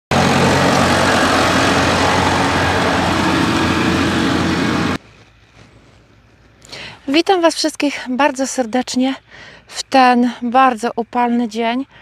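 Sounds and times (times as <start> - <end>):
tractor diesel engine running: 0.1 - 5.0.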